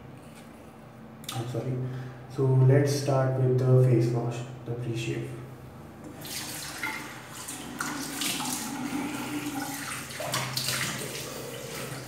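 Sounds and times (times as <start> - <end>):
tap running into basin: 6.0 - 12.0
water splashing on face: 6.2 - 12.0.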